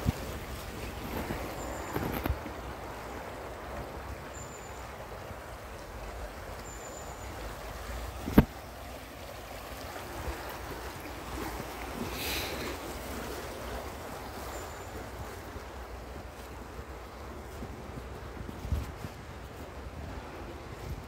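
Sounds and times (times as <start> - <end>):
wind rumbling on microphone: 0.0 - 4.3, 8.1 - 8.6, 15.2 - 21.0
leaves rustling: 0.0 - 21.0
river flowing over stones: 0.0 - 21.0.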